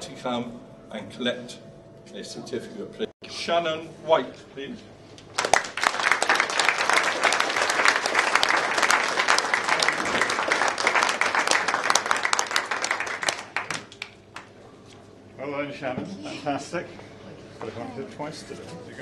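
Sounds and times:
audience applauding: 5.3 - 14.5.

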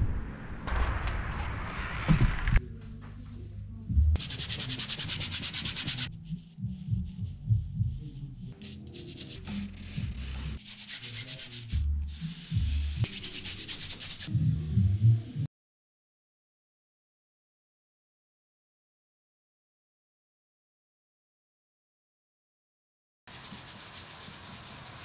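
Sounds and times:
paintbrush scrubbing canvas: 4.2 - 6.1, 8.5 - 14.3, 23.3 - 25.0.

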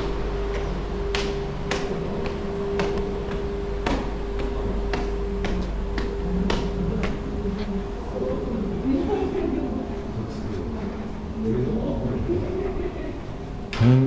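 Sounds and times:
footsteps on hard stairs: 0.0 - 7.7
steady hum with held tone: 0.0 - 14.0.

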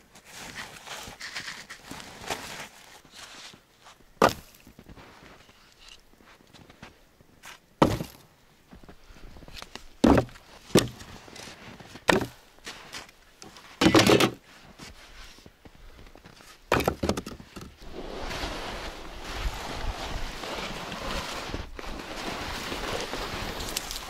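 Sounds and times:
logs thunking into plastic sled: 7.8 - 8.2, 10.0 - 12.4, 13.8 - 14.4, 16.7 - 18.4.

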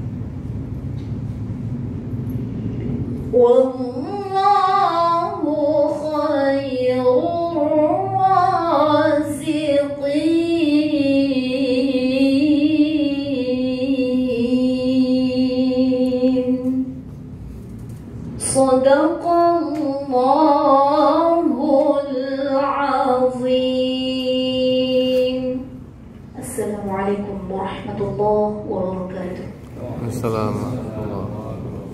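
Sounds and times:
woman chanting: 3.3 - 16.9, 18.4 - 25.8, 26.4 - 29.6.

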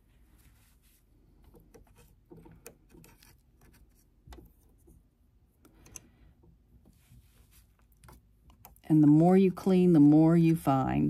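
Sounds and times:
brush scratching metal: 1.6 - 5.0.

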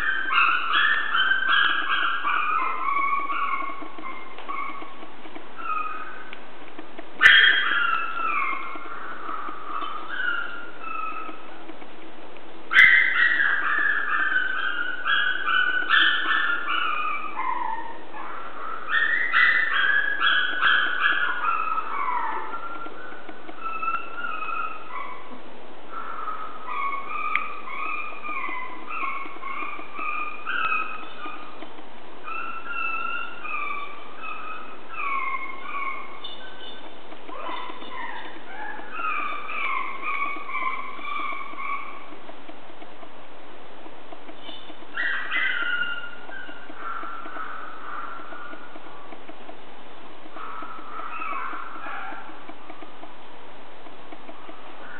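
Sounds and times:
puppies whining: 0.0 - 6.3, 7.2 - 11.6, 12.7 - 25.4, 26.0 - 42.2, 44.3 - 49.2, 50.3 - 52.8.

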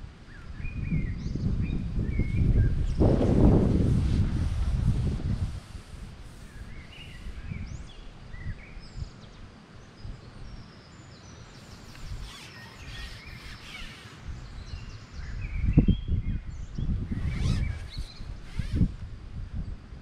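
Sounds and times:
small birds chirping: 5.5 - 19.0.

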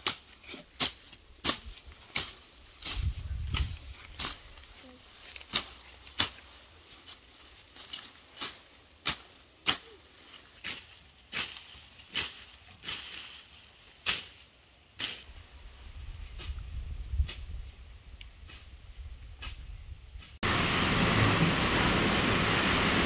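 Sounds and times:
footsteps crunching dry leaves: 0.0 - 14.6.

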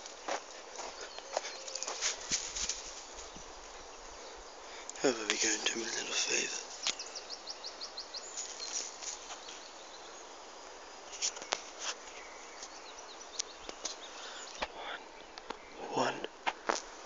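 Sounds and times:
footsteps crunching on dry leaves: 0.0 - 3.5, 8.3 - 9.7
faint bird chirps: 0.8 - 2.2.

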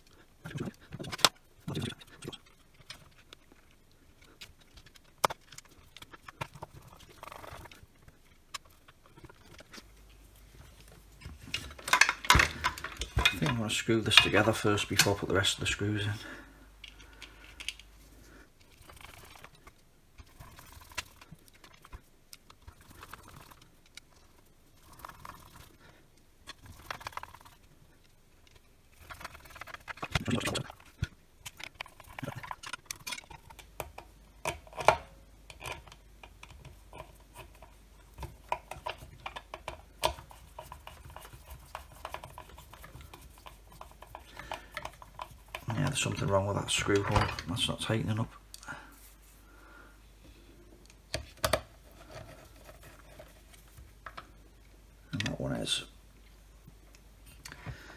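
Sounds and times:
plastic parts clicking and tapping: 0.5 - 7.8, 11.2 - 15.4, 16.8 - 17.9, 26.4 - 47.8, 50.8 - 54.4
parts clattering: 0.9 - 23.1, 26.4 - 49.2.

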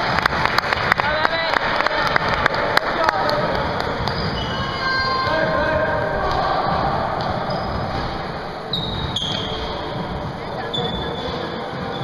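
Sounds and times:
din of echoing voices: 0.8 - 12.0
basketball bouncing: 3.3 - 11.3
sneakers squeaking on court: 3.6 - 12.0.

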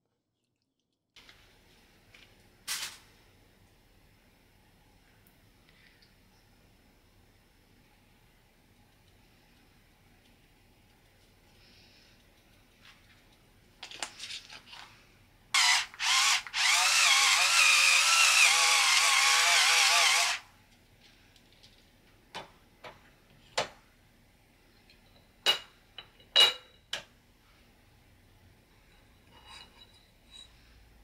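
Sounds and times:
electric pepper grinder whirring: 15.6 - 20.4.

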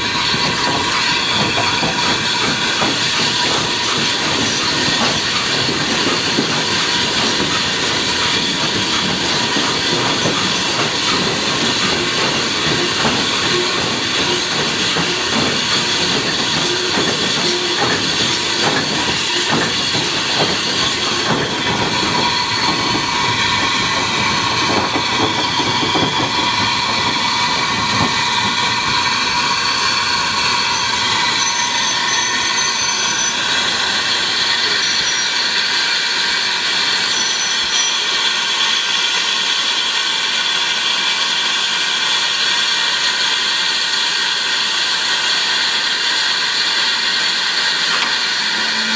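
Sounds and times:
locomotive exhaust beats: 0.0 - 35.3
wheels clattering on rails: 0.0 - 40.8, 44.2 - 48.9
steam hissing: 0.0 - 48.9.

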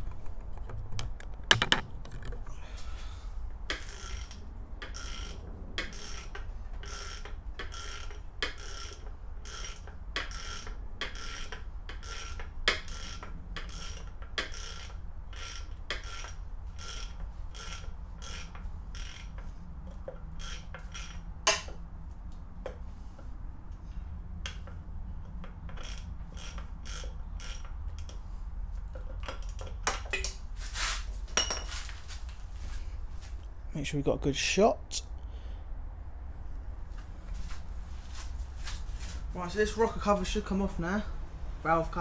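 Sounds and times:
ratchet wrench clicking: 3.7 - 21.8, 24.4 - 28.2.

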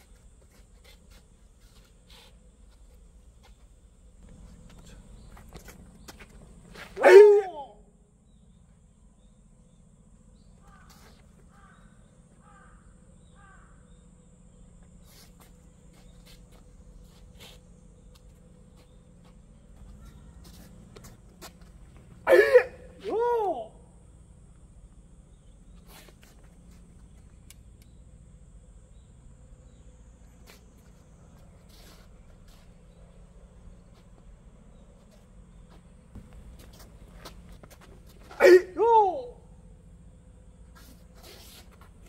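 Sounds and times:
faint outdoor background: 0.0 - 42.0
bird cawing: 10.6 - 14.0.

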